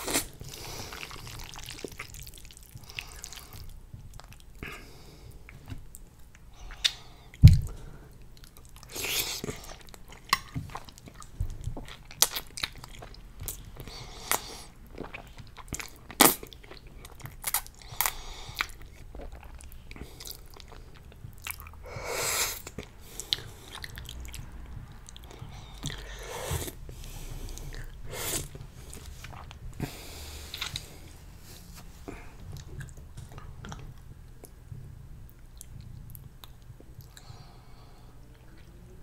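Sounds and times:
wet chewing with lip smacks: 0:00.0 - 0:04.6, 0:22.6 - 0:31.0, 0:32.1 - 0:34.6.

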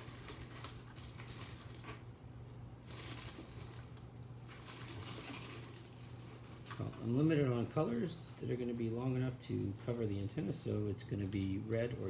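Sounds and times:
low electrical hum: 0:00.0 - 0:12.0
rustling and crinkling: 0:00.0 - 0:12.0.

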